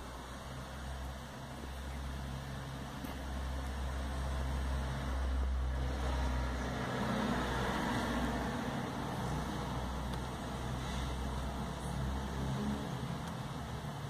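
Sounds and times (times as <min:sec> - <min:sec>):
faint hiss: 0:07.0 - 0:14.0.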